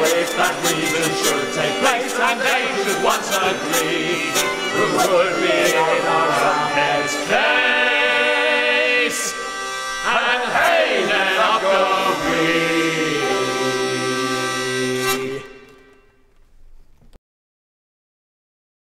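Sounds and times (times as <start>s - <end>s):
mixed voices singing: 0.0s - 15.9s
hurdy-gurdy: 0.0s - 16.4s.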